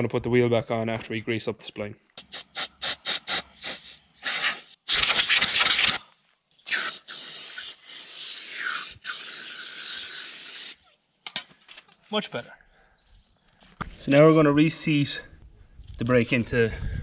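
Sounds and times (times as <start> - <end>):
aerosol spray hissing: 2.2 - 6.0, 6.7 - 10.8.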